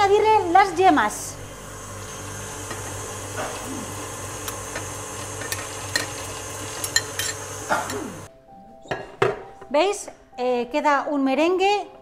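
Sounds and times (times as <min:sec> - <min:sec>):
electric mixer running: 0:00.0 - 0:08.3.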